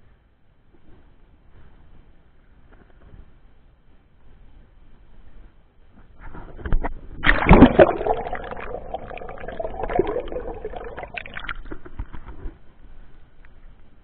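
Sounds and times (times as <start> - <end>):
underwater gurgling and sloshing: 6.3 - 12.6
sea water splashing: 7.2 - 12.1.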